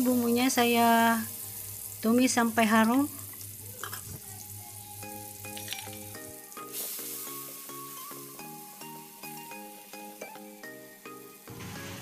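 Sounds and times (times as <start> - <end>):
spice paste sizzling in hot oil: 0.0 - 12.0
light plucked background music: 3.8 - 12.0.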